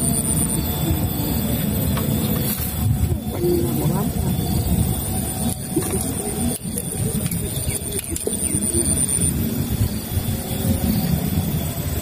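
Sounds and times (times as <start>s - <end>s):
high-pitched whine: 0.0s - 12.0s
wind buffeting microphone: 0.0s - 12.0s.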